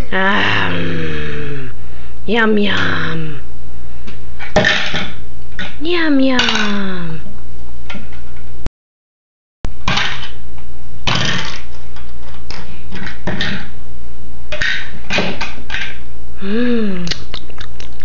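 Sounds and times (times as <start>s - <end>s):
person humming: 0.0s - 3.5s, 5.8s - 7.3s, 16.4s - 18.0s.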